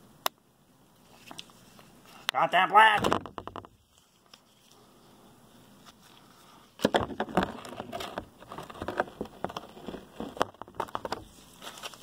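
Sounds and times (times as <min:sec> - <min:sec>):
handling knocks and rustles: 0:06.7 - 0:12.0.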